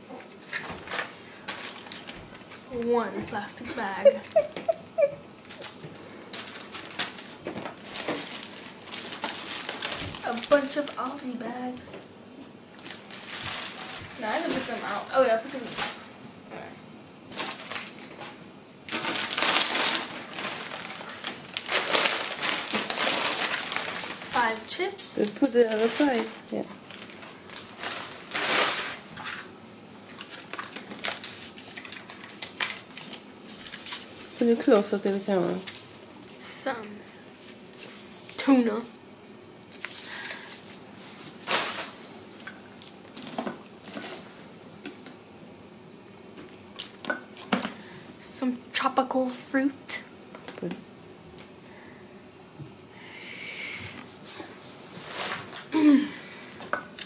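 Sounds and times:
plastic rustle: 0.4s - 2.9s, 5.5s - 11.8s, 12.7s - 16.1s, 17.3s - 29.5s, 30.1s - 38.0s, 39.7s - 44.4s, 54.2s - 56.0s
plastic bags crinkling: 0.8s - 2.6s, 5.5s - 11.4s, 12.7s - 16.0s, 17.3s - 29.4s, 30.1s - 36.3s, 41.3s - 42.0s.

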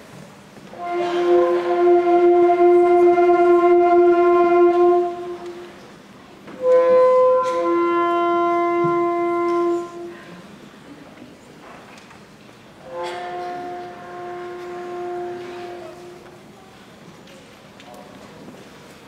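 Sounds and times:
band playing held chords: 0.8s - 5.8s.

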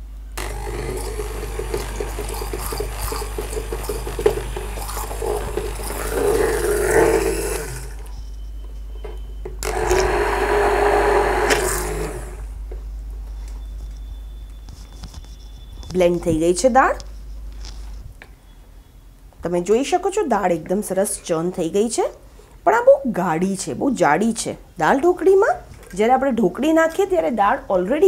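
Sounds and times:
immersion blender running: 0.4s - 8.1s, 9.6s - 12.6s.

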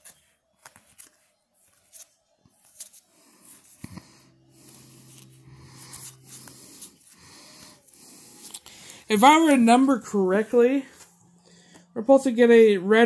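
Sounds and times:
cards rustling and clicking: 0.0s - 7.2s
steady low hum: 3.6s - 12.9s.

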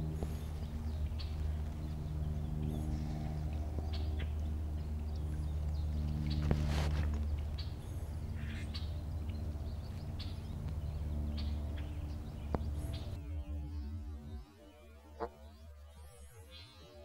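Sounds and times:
small birds chirping: 0.0s - 13.4s
low steady rumble: 0.0s - 16.6s.

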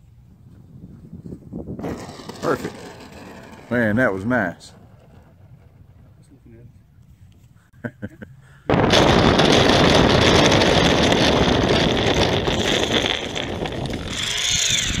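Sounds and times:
wheels rattling on rough dirt: 1.8s - 6.6s, 8.8s - 15.0s
wind rushing: 8.7s - 15.0s
model plane motor: 9.4s - 15.0s.

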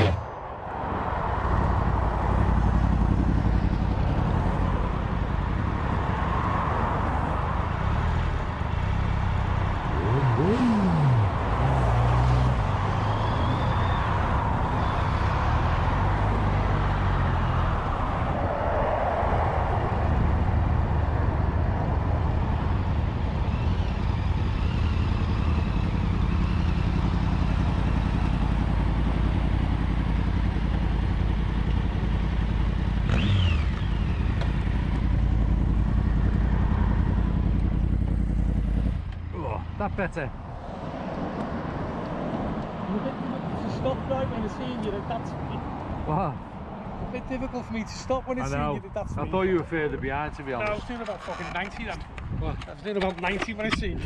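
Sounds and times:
motorcycle engine drone: 0.0s - 45.0s
wind noise: 51.9s - 54.0s.

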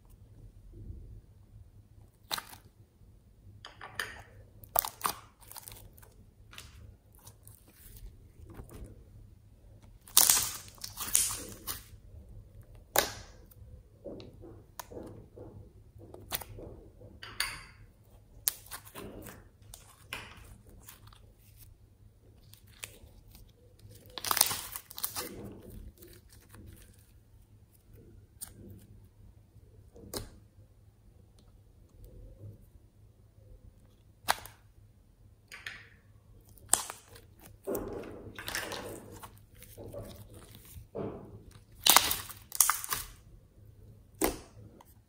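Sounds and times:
slime crackling and popping: 2.2s - 2.7s, 4.6s - 9.0s, 9.8s - 12.0s, 12.6s - 13.6s, 18.3s - 21.7s, 22.3s - 27.2s, 34.1s - 34.7s, 36.4s - 43.2s.

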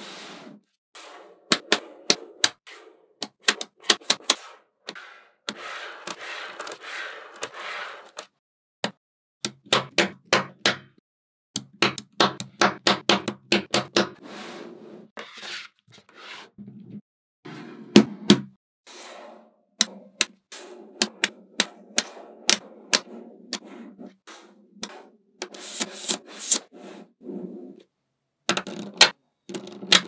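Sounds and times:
magnetic balls rattling and sliding: 28.5s - 30.0s.

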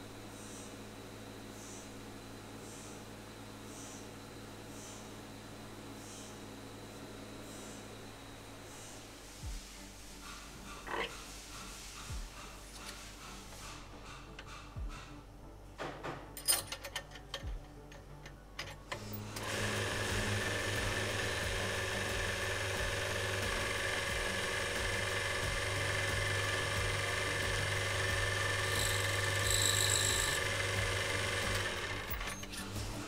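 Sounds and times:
lathe motor humming: 18.9s - 33.0s
high-pitched whine: 20.0s - 33.0s.

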